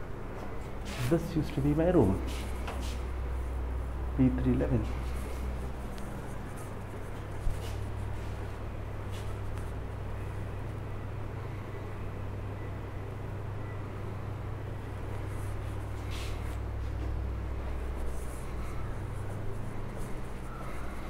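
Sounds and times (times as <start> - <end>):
steady low hum: 0.0 - 21.0
faint footsteps: 15.1 - 21.0.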